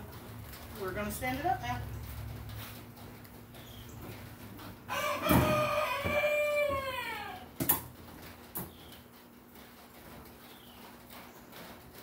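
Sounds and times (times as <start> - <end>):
rooster crowing: 4.9 - 7.5.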